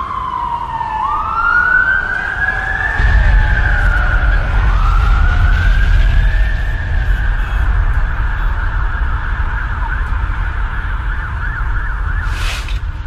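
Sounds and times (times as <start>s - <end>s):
emergency siren wailing: 0.0s - 13.0s
deep rumble: 2.8s - 13.0s.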